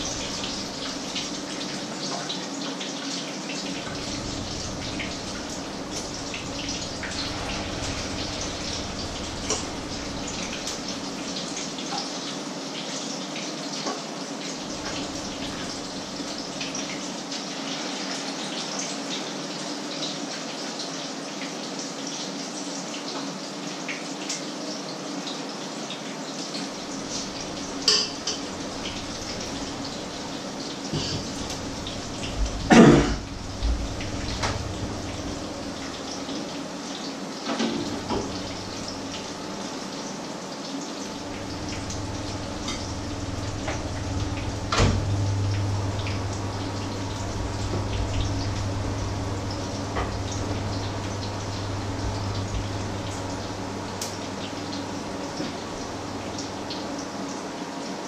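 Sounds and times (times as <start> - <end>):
low hum: 0.0 - 1.4, 3.8 - 11.8, 14.6 - 16.6, 26.7 - 36.4, 37.9 - 39.7, 41.1 - 56.7
patties sizzling in oil: 0.0 - 57.6
utensils clattering: 27.8 - 28.6.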